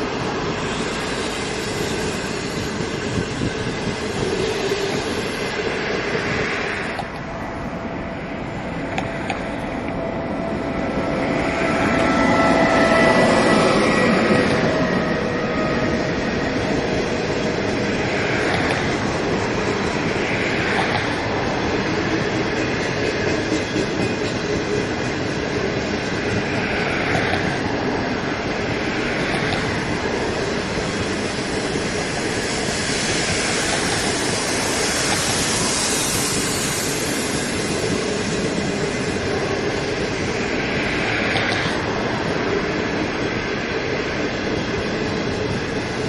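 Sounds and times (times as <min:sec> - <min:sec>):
high hiss: 0:00.0 - 0:15.4, 0:28.6 - 0:42.0
train wheels running on rails: 0:00.0 - 0:46.0.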